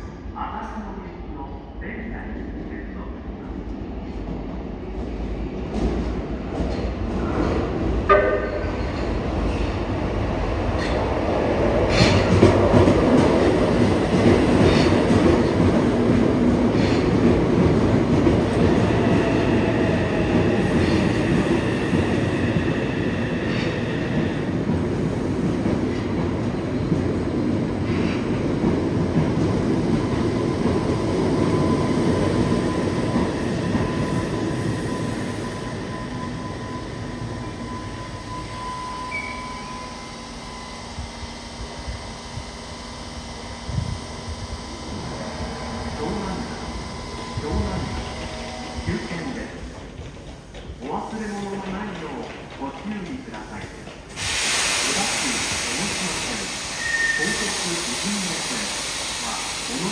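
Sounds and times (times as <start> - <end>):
train wheels clacking on rails: 10.7 - 34.8, 47.4 - 58.3.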